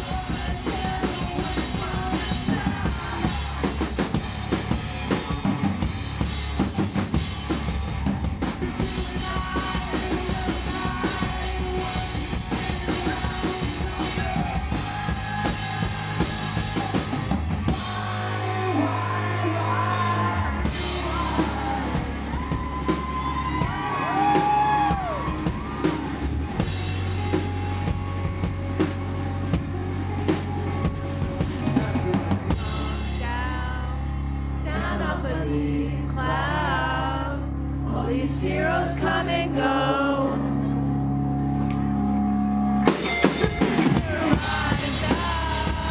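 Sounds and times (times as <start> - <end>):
man singing: 0.0 - 4.2, 8.6 - 22.5, 31.6 - 40.5, 43.4 - 45.9
drum kit beat: 0.0 - 34.1, 42.8 - 45.9
rock band playing: 0.0 - 45.9.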